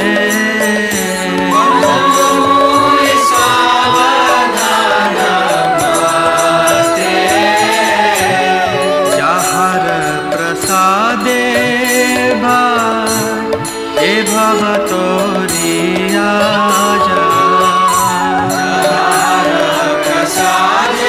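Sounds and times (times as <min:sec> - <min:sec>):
crowd singing a devotional chant: 0:00.0 - 0:21.0
hand cymbals ringing: 0:00.0 - 0:21.0
steady drone: 0:01.3 - 0:09.3.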